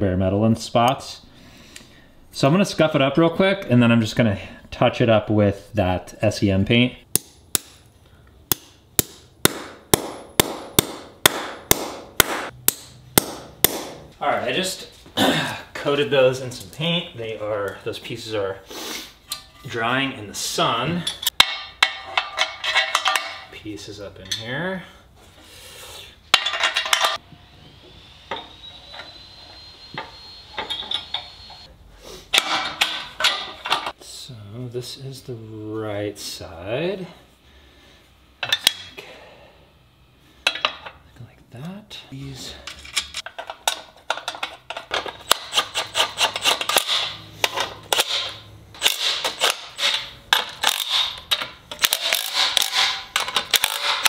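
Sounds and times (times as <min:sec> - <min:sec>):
metal parts clattering: 0:21.1 - 0:23.5, 0:26.3 - 0:27.2, 0:32.4 - 0:33.9, 0:42.6 - 0:54.0
metal scraping rubs: 0:45.2 - 0:48.4.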